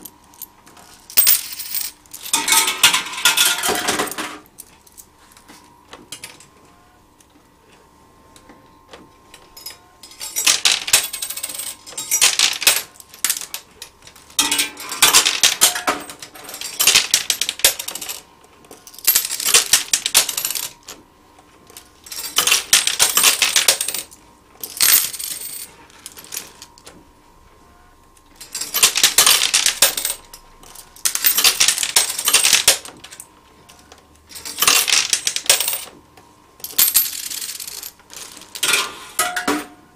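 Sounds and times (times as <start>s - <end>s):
coins sliding and clinking: 1.0s - 4.2s, 18.9s - 20.8s, 22.1s - 26.7s, 28.4s - 30.2s, 34.3s - 35.9s, 36.6s - 39.2s.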